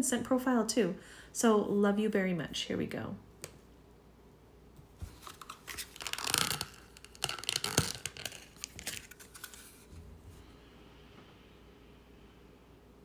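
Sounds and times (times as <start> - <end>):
packaging clicks and crinkles: 5.1 - 9.8
packaging tearing: 5.1 - 9.8.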